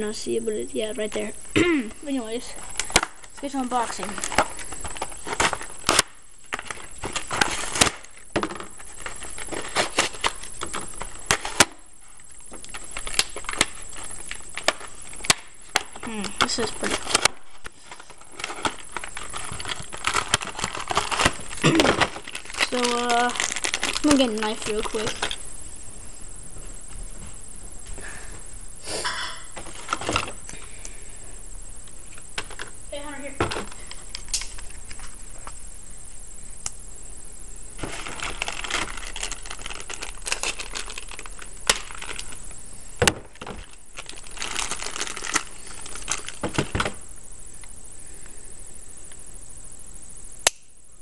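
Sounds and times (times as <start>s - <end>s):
packaging rustling: 2.6s - 25.4s, 29.6s - 30.4s, 37.8s - 47.0s
plastic packaging snapping: 4.1s - 11.8s, 12.5s - 25.4s, 34.1s - 35.0s, 37.8s - 42.4s, 43.0s - 47.0s.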